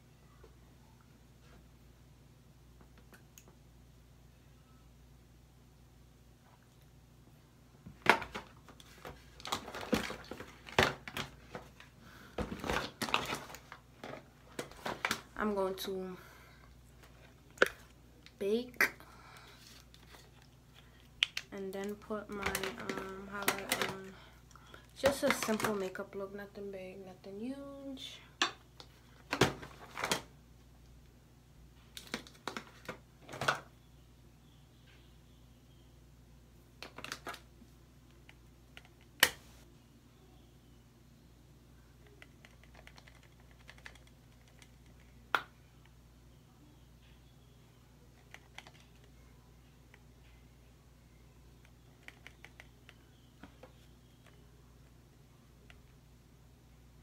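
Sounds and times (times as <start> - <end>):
small containers clicking and knocking: 20.2 - 24.1.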